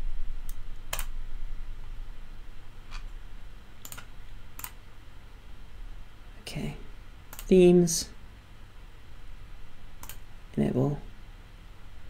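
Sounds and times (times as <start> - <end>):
computer mouse clicks: 0.5 - 1.1, 3.8 - 4.8, 7.3 - 7.6, 10.0 - 10.2.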